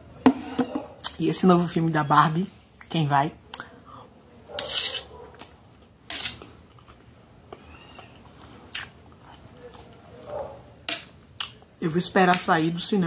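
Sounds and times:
chewing food: 5.2 - 10.6.

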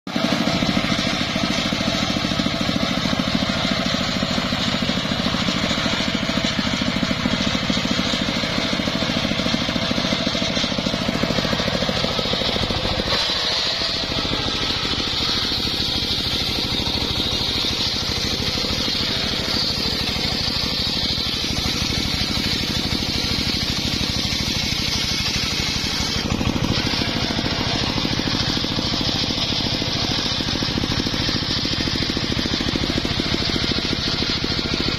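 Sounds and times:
circular saw ripping a log: 0.2 - 34.9.

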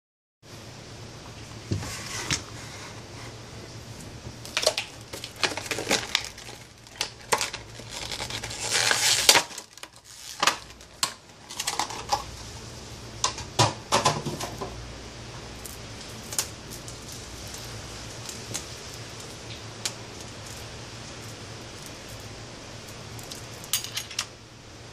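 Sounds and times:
scraping rustle: 1.7 - 4.2, 5.0 - 12.5.

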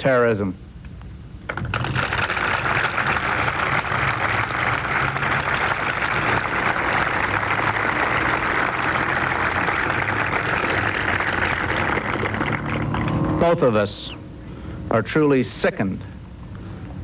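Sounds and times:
crowd applauding: 1.5 - 13.3.

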